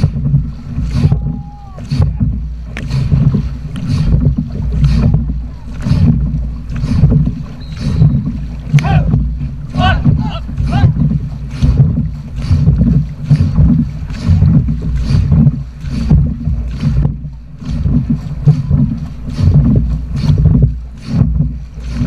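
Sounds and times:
low rumble of water and wind: 0.0s - 22.0s
paddles striking water: 0.0s - 22.0s.

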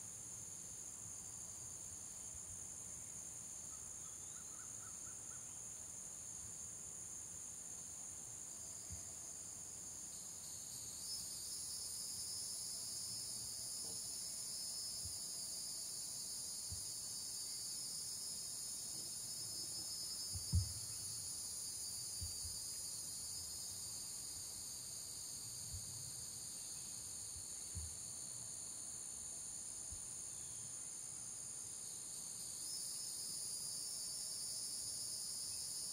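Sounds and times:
crickets chirping: 0.0s - 35.9s.

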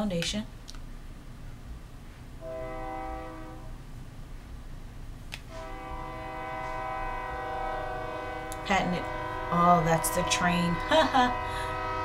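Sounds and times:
train horn blasts: 2.4s - 3.8s, 5.5s - 12.0s.

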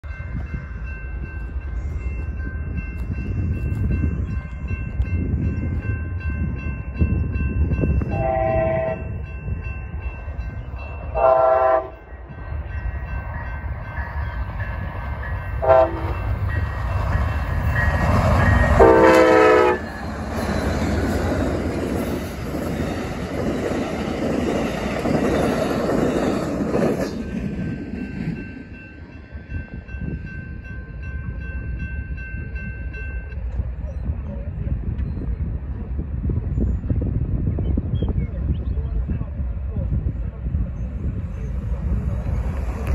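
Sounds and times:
crossing bells ringing: 0.0s - 34.1s
train wheels rumbling on rail: 0.0s - 42.9s
high hiss of passing train: 0.8s - 32.8s, 39.0s - 42.9s
train horn blasts: 8.1s - 9.2s, 11.1s - 12.2s, 15.6s - 16.3s, 18.8s - 19.9s.

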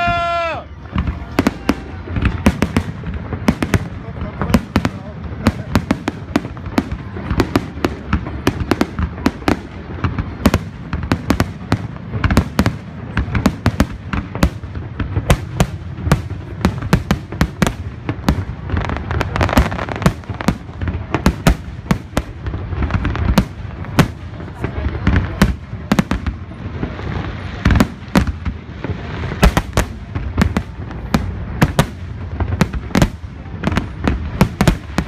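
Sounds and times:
fireworks bursting: 0.0s - 35.0s.

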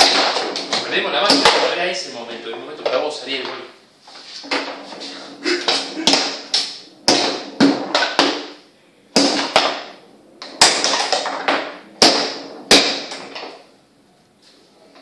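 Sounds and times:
foosball ball clacking: 0.0s - 1.9s, 4.3s - 13.7s.

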